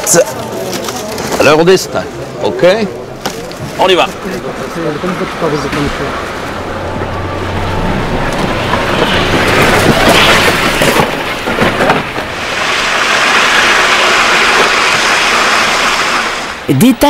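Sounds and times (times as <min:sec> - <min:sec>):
toboggan scraping down asphalt: 0:03.2 - 0:16.6.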